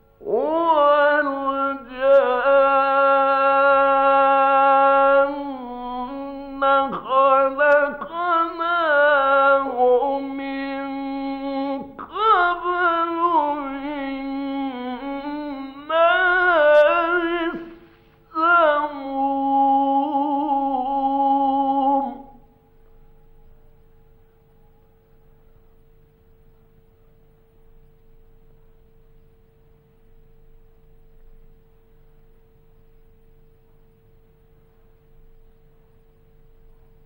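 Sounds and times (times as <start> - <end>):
faint steady hum: 0.0 - 37.0
man chanting melodic recitation: 0.2 - 22.4.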